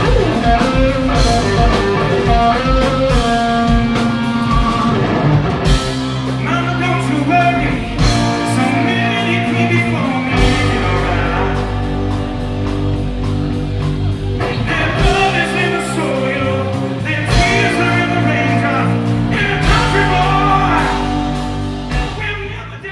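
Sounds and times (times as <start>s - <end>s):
electric guitar: 0.0s - 22.6s
bass guitar: 0.0s - 22.9s
drum kit: 0.0s - 22.9s
person singing lead vocal: 6.4s - 12.2s, 14.4s - 22.9s.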